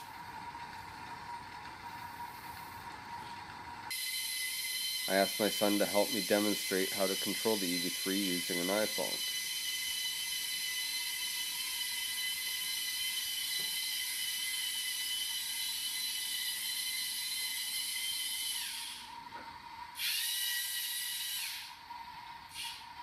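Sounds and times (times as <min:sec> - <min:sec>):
toy robot motor whine: 0:03.9 - 0:19.2, 0:19.9 - 0:21.9, 0:22.5 - 0:23.0.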